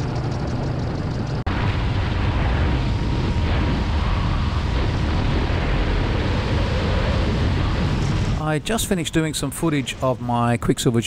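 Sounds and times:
light aircraft engine: 0.0s - 7.8s
wind rushing on microphone: 0.0s - 9.1s.

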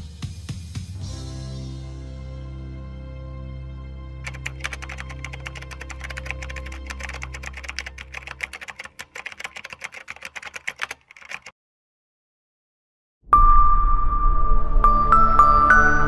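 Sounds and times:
keyboard typing clicks: 4.3s - 11.5s.

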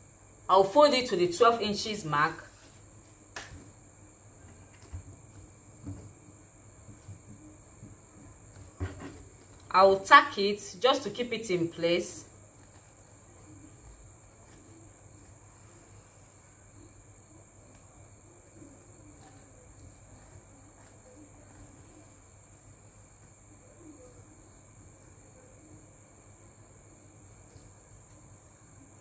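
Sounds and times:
steady high-pitched whine: 0.0s - 29.0s
soft fabric handling sounds: 2.3s - 9.7s, 12.4s - 24.1s.

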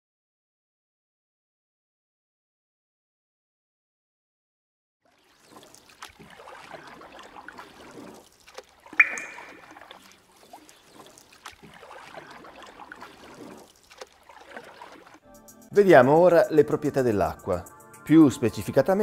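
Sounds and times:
water trickling and splashing: 5.0s - 15.2s
drop plinking into water: 8.8s - 13.3s.

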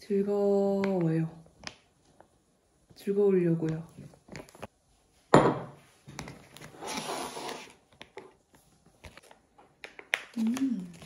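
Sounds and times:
glass cup knocking on wooden table: 5.4s - 5.8s
plastic pouch crinkling: 9.1s - 11.0s.

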